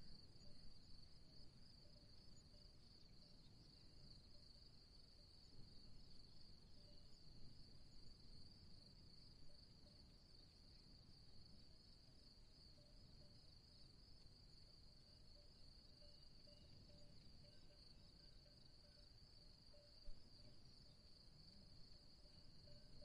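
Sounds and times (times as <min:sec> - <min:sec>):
insects chirring: 0:12.5 - 0:23.0.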